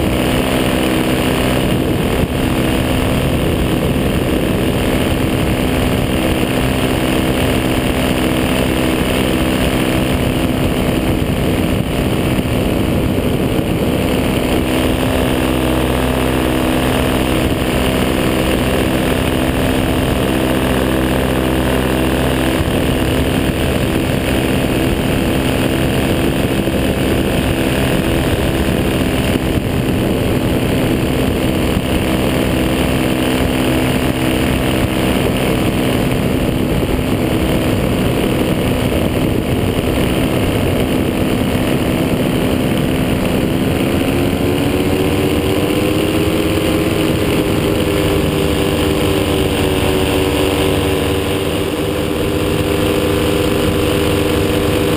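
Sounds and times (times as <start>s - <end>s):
paramotor engine drone: 0.0s - 54.9s.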